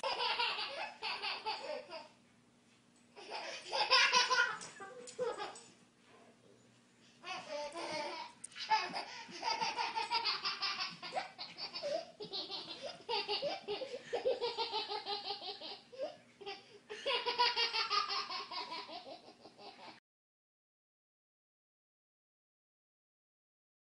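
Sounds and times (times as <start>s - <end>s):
baby laughing: 0.0s - 2.2s, 3.2s - 5.7s, 7.2s - 20.0s.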